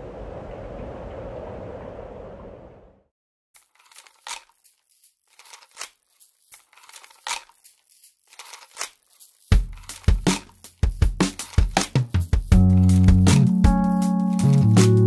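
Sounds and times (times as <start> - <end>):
paper rustling and crinkling: 3.6 - 12.2.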